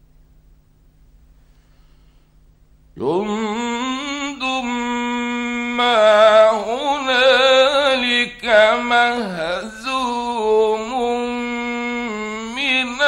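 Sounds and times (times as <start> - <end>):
breath: 1.3 - 2.4
man reciting melodically: 3.0 - 13.0.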